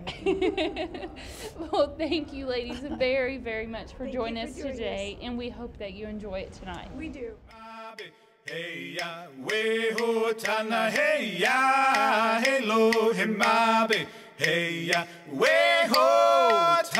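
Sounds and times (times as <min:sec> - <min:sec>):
steady low drone: 0:00.0 - 0:07.8
voices chanting a melody: 0:07.5 - 0:16.9.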